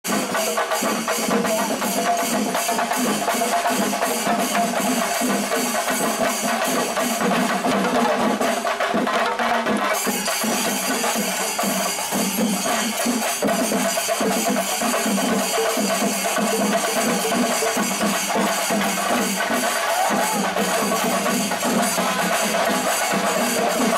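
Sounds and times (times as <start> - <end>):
fast drumming: 0.0 - 23.9
cymbals: 0.1 - 23.9.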